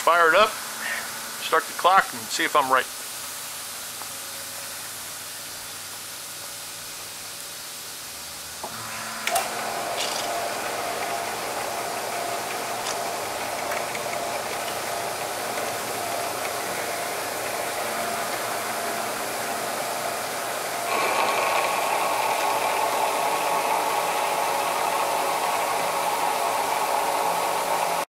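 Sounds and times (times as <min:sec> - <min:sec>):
steady hiss: 0:00.0 - 0:21.3
bandsaw cutting metal: 0:08.7 - 0:28.0.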